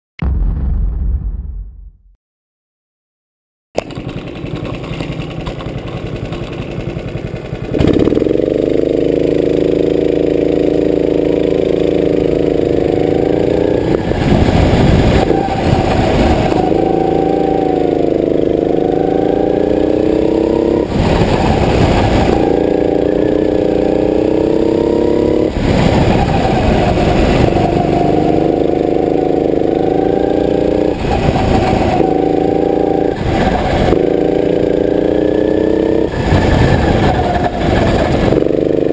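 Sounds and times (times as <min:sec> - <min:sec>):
bursts of rushing noise: 0:00.2 - 0:02.0
go-kart engine drone: 0:03.8 - 0:38.9.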